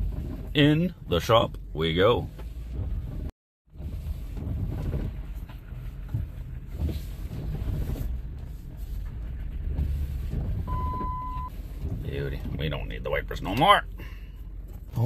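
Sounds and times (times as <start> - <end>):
windshield wipers sweeping: 0.0 - 13.7
short beep: 10.7 - 11.5.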